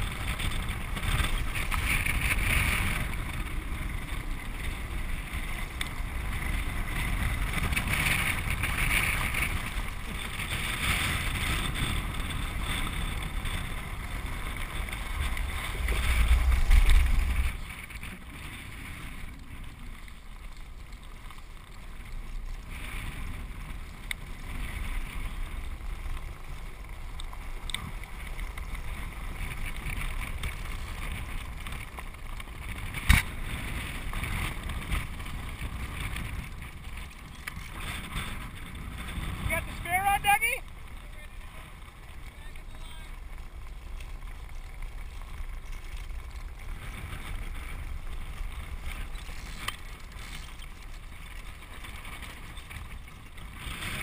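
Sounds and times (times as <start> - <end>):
wheels rumbling on dry ground: 0.0 - 54.0
wind buffeting microphone: 0.0 - 54.0.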